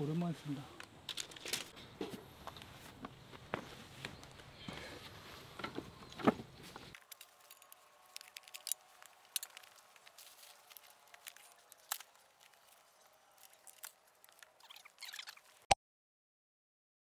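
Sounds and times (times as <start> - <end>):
camping gear clicks and taps: 0.8 - 14.7
fabric pouch opening: 7.0 - 15.6.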